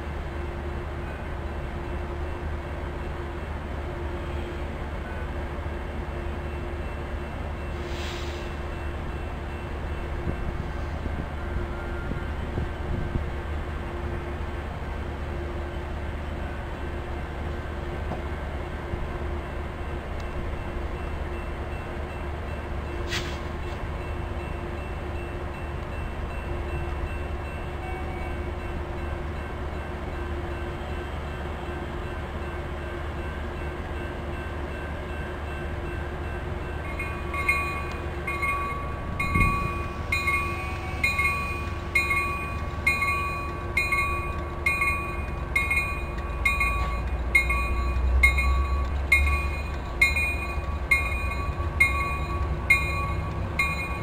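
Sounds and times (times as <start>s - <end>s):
train rumbling: 0.0s - 54.0s
bell ringing: 36.9s - 54.0s.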